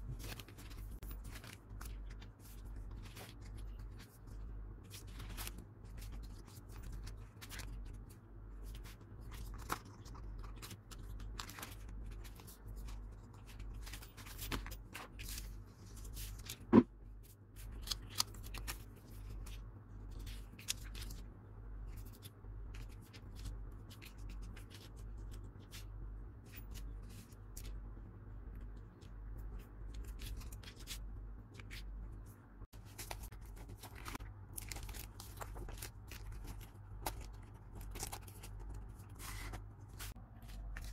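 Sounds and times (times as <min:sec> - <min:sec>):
paper and plastic rustling: 0:00.0 - 0:21.2, 0:32.7 - 0:40.9.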